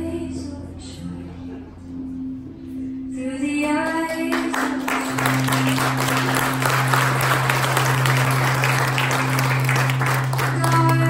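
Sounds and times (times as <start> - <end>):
music with sustained low notes: 0.0 - 11.0
audience applause: 4.3 - 11.0.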